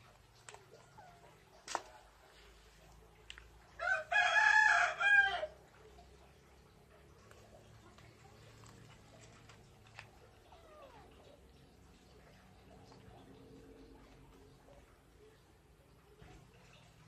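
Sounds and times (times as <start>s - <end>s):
rooster crowing: 3.8s - 5.6s.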